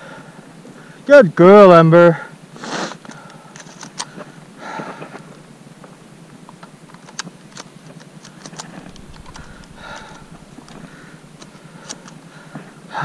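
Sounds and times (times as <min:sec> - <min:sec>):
sharp clicks and ticks: 0:06.5 - 0:12.3.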